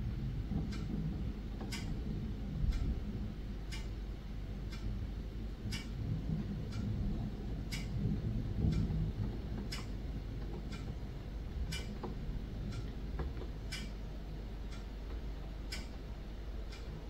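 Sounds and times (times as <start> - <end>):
low steady rumble: 0.0 - 17.0
clock ticking: 0.5 - 17.0.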